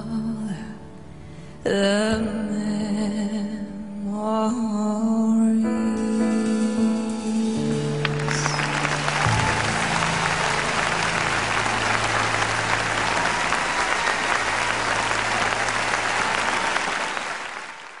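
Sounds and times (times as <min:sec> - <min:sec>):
audience applauding: 0:07.9 - 0:18.0.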